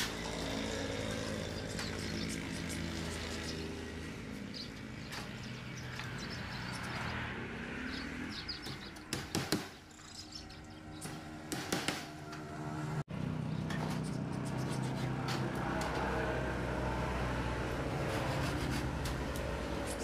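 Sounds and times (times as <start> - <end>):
engine running: 10.2 - 20.0.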